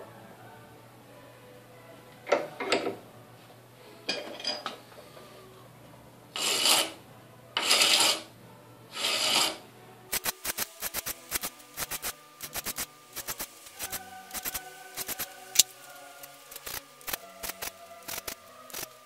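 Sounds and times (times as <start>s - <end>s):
file rasping on metal: 6.4s - 7.0s, 7.6s - 8.3s, 8.9s - 9.6s
sharp ticks: 10.1s - 19.0s.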